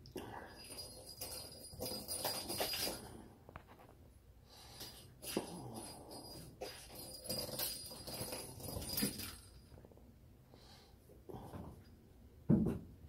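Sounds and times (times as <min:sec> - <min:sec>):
thump on hard floor: 0:12.5 - 0:12.9.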